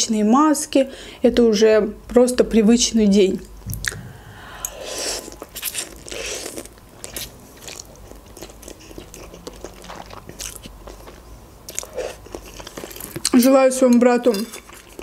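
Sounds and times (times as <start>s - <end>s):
wet mouth clicks: 3.7s - 5.7s
chewing: 4.6s - 15.0s.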